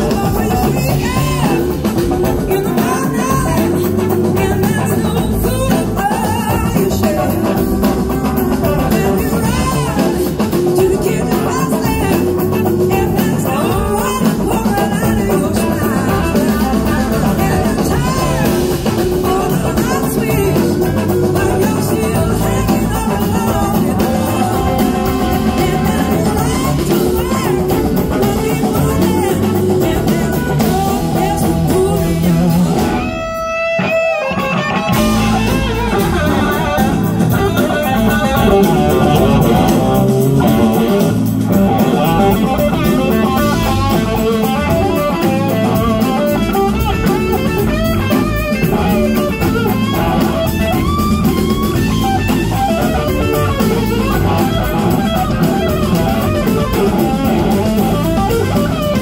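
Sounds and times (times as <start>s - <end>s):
blues-rock band playing: 0.0s - 59.0s.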